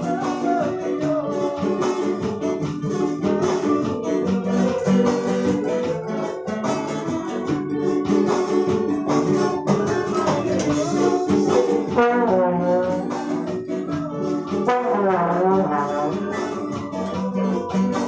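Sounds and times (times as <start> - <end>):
acoustic guitar chords: 0.0 - 18.0
electronic keyboard chords: 0.0 - 18.0
trombone melody with pitch bends: 10.6 - 18.0.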